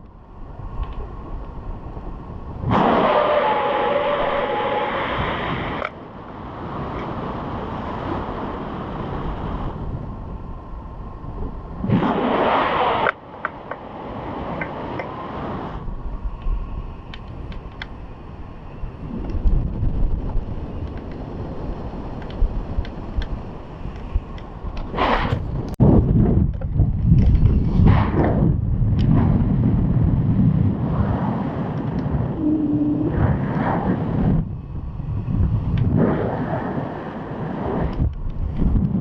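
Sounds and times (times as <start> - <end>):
wind rushing over microphone: 0.0 - 39.0
faint clicks: 0.8 - 1.6, 16.3 - 18.0.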